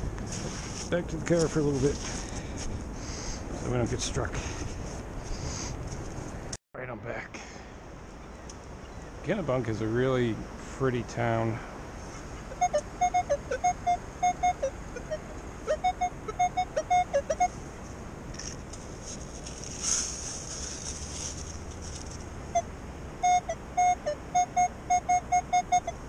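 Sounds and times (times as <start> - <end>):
sand scoop digging: 0.2 - 2.4, 18.4 - 22.3
metal detector short beeps: 12.5 - 17.5, 23.2 - 26.0.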